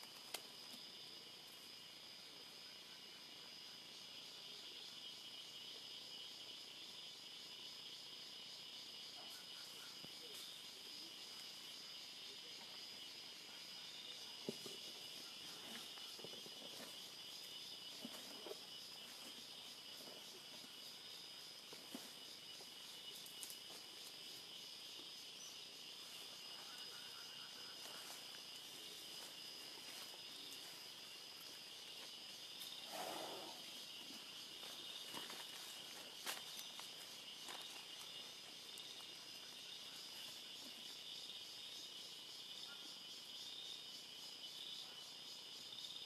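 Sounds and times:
rustles: 0.0s - 2.0s, 14.2s - 24.6s, 25.8s - 41.0s
insects chorus: 0.0s - 46.0s.

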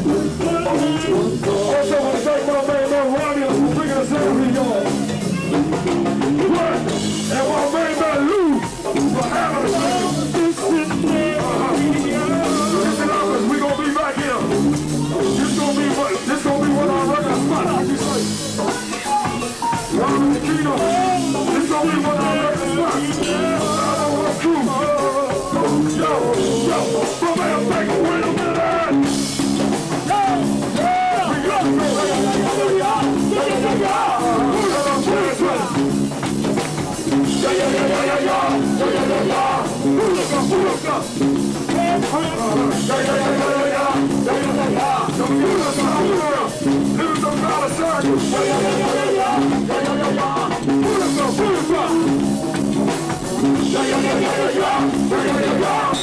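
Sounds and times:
person singing into microphone: 0.0s - 5.6s, 6.2s - 14.4s, 18.9s - 29.1s, 30.7s - 35.8s, 41.7s - 52.2s, 53.4s - 56.0s
band playing drum and bass groove: 0.0s - 56.0s.

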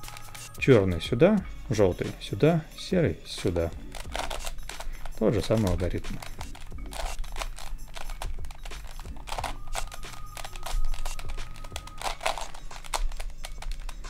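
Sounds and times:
plastic puzzle pieces clicking: 3.8s - 14.0s.

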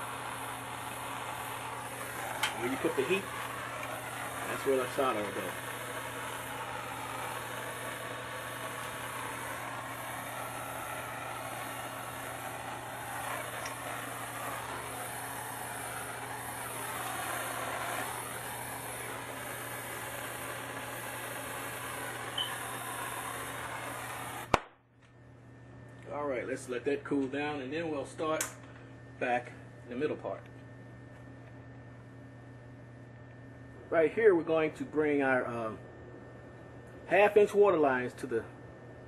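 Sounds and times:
gas torch hissing: 0.0s - 24.7s
torch shutoff click: 0.0s - 24.8s, 28.3s - 28.9s.

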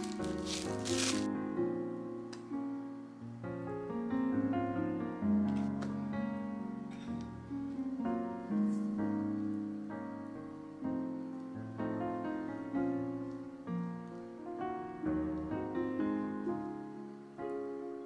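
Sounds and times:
slow solo piano music: 0.0s - 18.0s.

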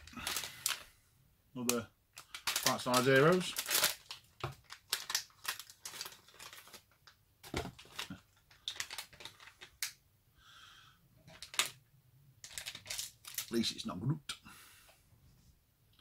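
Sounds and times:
plastic packet crinkling and tearing: 0.0s - 0.9s, 1.6s - 10.0s, 11.3s - 11.8s, 12.4s - 13.7s.

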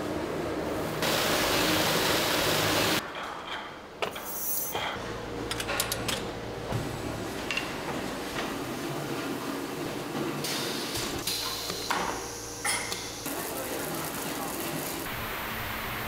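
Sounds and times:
low machine hum: 5.0s - 15.8s.

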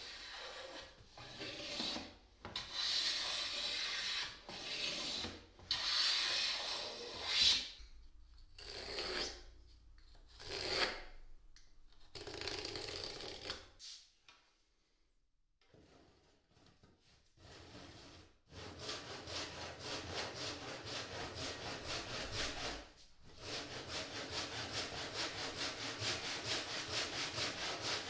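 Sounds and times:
hand plane shaving wood: 0.0s - 7.5s, 17.4s - 28.0s.

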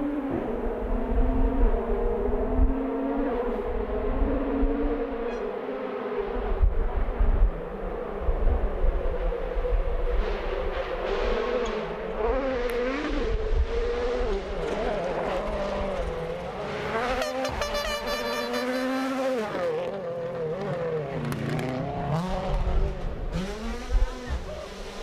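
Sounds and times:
rally car engine revving: 9.8s - 25.0s.

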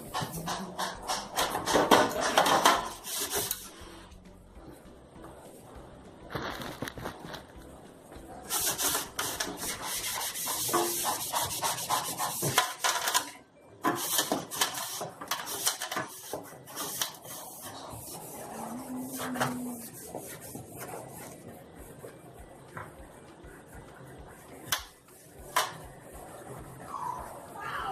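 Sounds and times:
hand scrubbing a hard surface: 2.4s - 4.0s, 8.5s - 13.0s, 14.0s - 22.2s.

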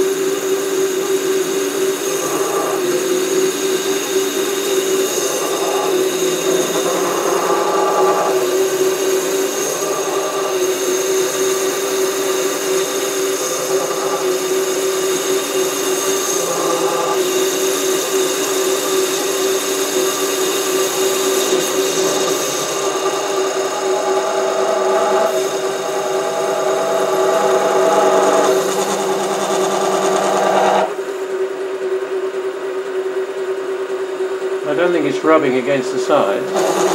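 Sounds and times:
lathe motor hum and whine: 0.0s - 36.9s
parting tool cutting metal: 35.6s - 36.9s.

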